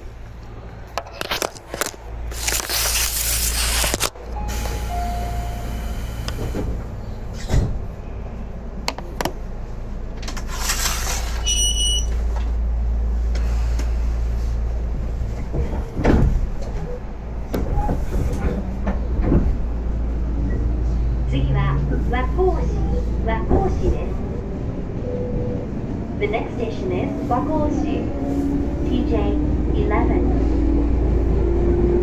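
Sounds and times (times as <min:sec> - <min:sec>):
train car low hum: 0:00.0 - 0:32.0.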